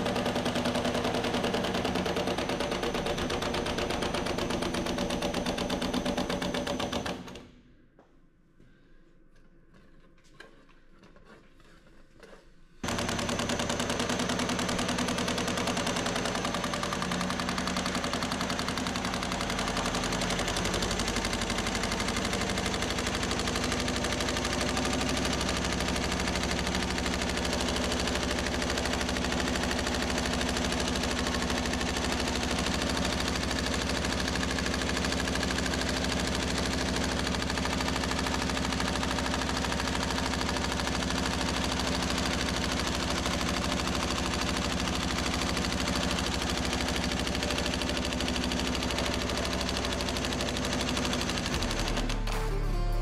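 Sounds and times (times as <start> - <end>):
machine hum: 51.4 - 53.0
power hammer striking sheet metal: 51.4 - 53.0.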